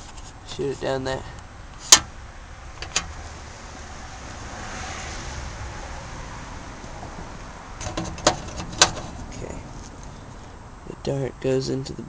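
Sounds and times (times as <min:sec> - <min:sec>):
outdoor rushing noise: 0:02.2 - 0:10.9.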